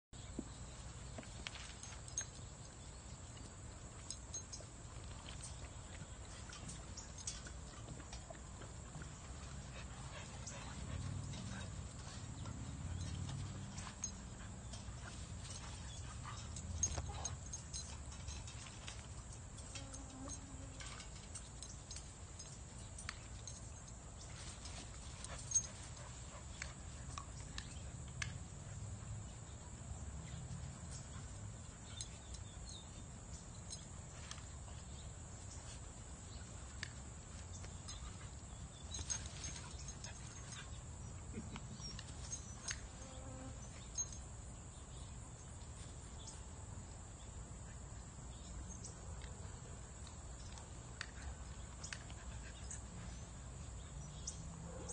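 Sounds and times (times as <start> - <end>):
puppies scuffling on grass: 0.2 - 19.8, 20.4 - 27.8.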